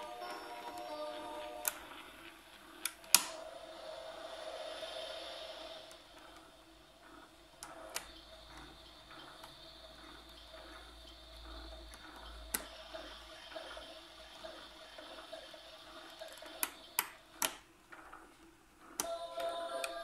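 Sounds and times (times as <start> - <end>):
watery hiss from small speaker: 3.3 - 8.9.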